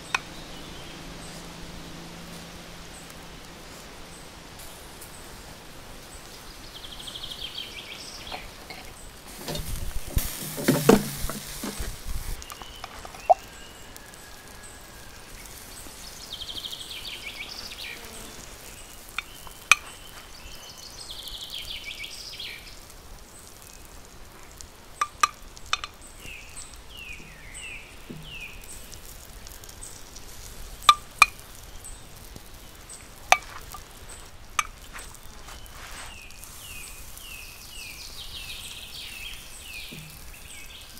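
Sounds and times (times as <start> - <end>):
fat popping and crackling: 0.0 - 1.6, 8.2 - 14.2, 17.8 - 40.9
birds chirping: 0.0 - 40.9
duck sizzling on a grill: 0.0 - 40.9.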